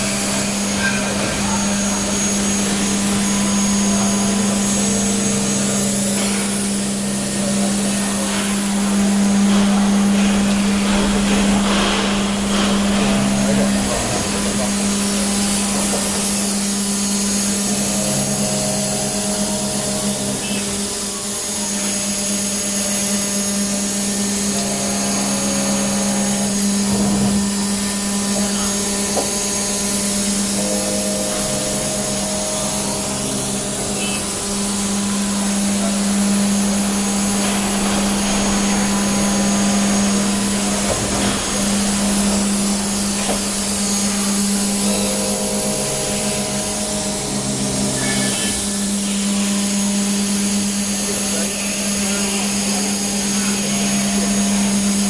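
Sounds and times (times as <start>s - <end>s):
high whining axis drives: 0.0s - 55.0s
router spindle humming: 0.0s - 55.0s.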